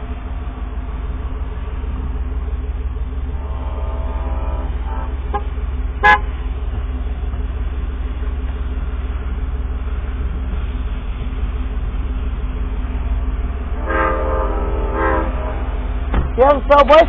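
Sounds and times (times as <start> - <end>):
steady low rumble: 0.0 - 17.0
train horn chord: 3.3 - 6.4, 13.7 - 16.0
sharp horn toot: 3.4 - 6.3, 13.8 - 15.8.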